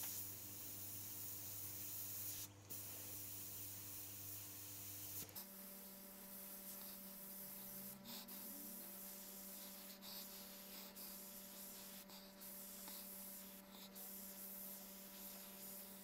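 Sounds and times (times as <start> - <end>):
airbrush hissing: 0.0 - 4.0, 5.0 - 16.0.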